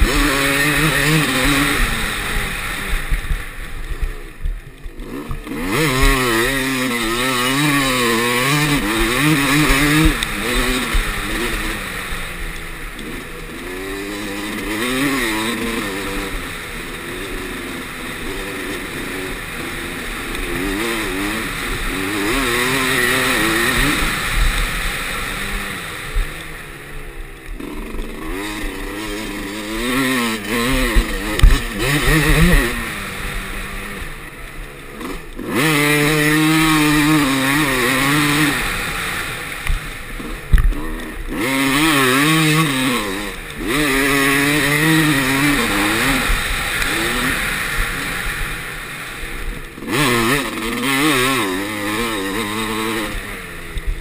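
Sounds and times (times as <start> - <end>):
dirt bike engine revving: 0.0 - 54.0
sharp thumps: 30.5 - 33.9.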